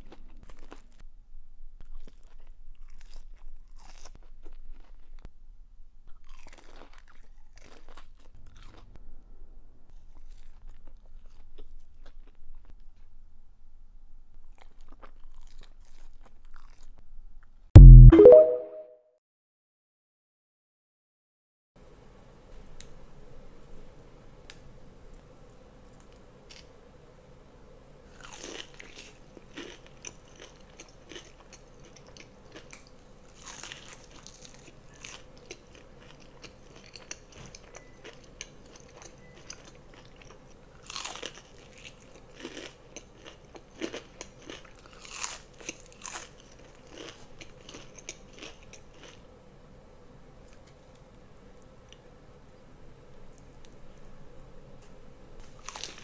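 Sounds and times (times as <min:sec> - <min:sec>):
crunchy chewing: 0:00.0 - 0:01.0, 0:01.8 - 0:05.3, 0:06.1 - 0:08.9, 0:10.0 - 0:12.7, 0:14.4 - 0:17.0, 0:28.1 - 0:49.3, 0:55.4 - 0:56.0.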